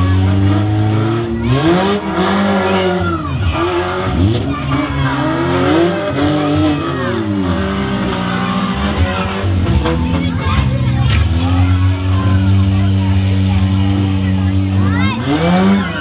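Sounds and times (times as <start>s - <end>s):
car engines revving hard: 0.0s - 16.0s.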